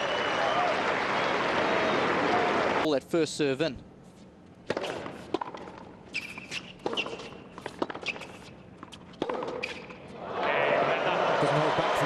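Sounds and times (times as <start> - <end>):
tennis ball bouncing: 4.6 - 10.0
racket hitting tennis ball: 4.7 - 10.0
shoe squeaks on court: 6.1 - 10.1.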